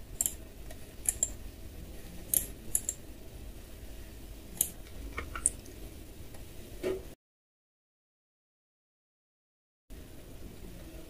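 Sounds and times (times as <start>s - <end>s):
low steady hum: 0.0s - 7.2s
mouse and keyboard clicks: 0.2s - 0.4s, 1.0s - 1.4s, 2.3s - 3.0s, 4.6s - 5.6s.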